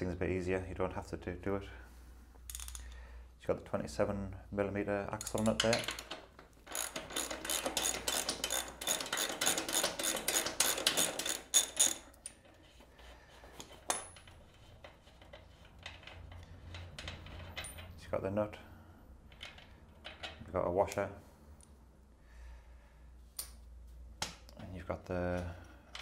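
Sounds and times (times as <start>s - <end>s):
socket ratchet clicking: 5.2s - 12.3s.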